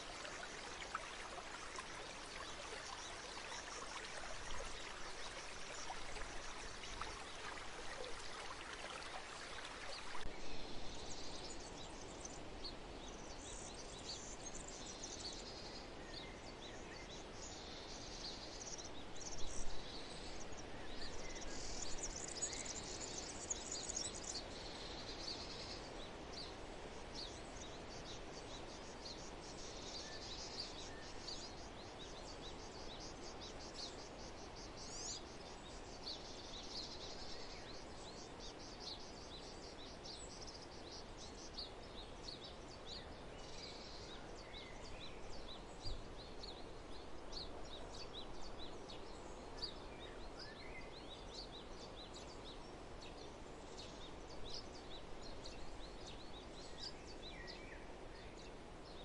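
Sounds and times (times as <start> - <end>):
low rushing background noise: 0.0 - 13.1.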